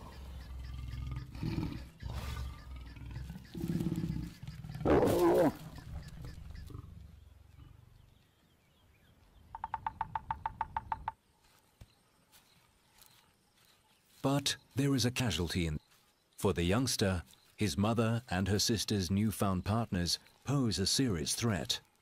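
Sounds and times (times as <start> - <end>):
lions growling: 0.0 - 8.2
lion snarl: 0.6 - 5.7
woodpecker drumming on tree: 9.5 - 11.2.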